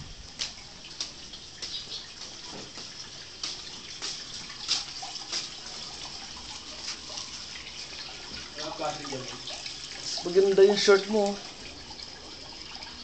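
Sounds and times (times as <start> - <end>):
steady hiss: 0.0 - 13.0
footsteps on hard floor: 0.4 - 5.5.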